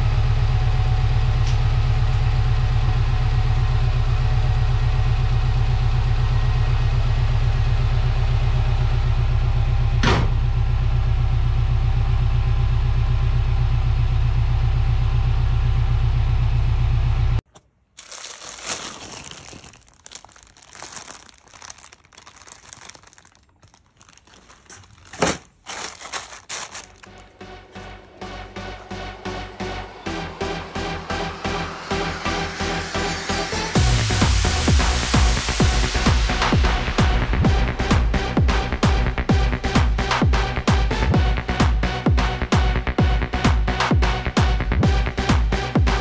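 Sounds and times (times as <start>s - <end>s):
plastic rustling: 17.5s - 27.4s
bonnet shutting knock: 24.6s - 26.9s
car engine idling: 26.7s - 41.2s.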